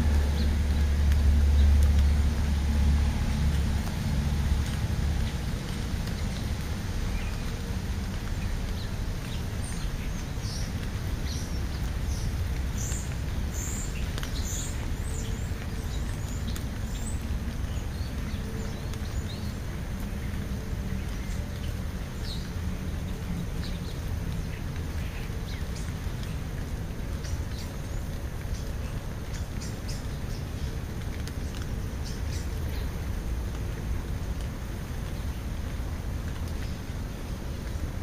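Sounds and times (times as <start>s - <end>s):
steady low rumble: 0.0s - 27.2s
small birds chirping: 4.6s - 33.2s.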